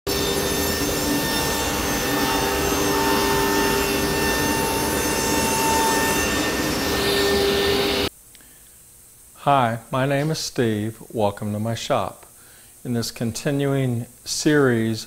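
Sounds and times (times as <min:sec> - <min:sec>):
table saw cutting wood: 0:00.1 - 0:08.1.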